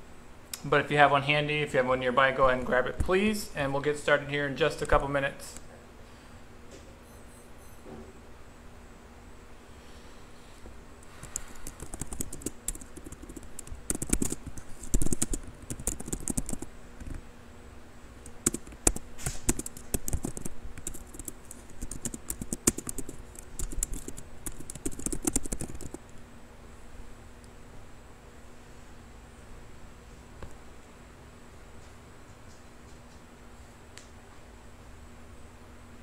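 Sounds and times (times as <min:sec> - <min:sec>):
typing on computer keyboard: 0:11.2 - 0:17.2, 0:18.2 - 0:26.1.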